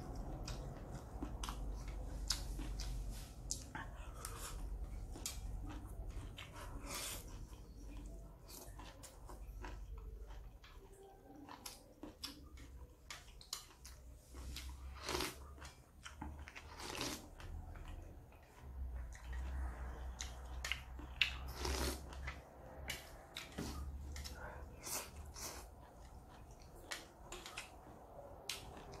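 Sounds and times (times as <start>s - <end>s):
wet chewing and smacks: 0.0s - 29.0s
slurping noodles: 21.5s - 22.2s.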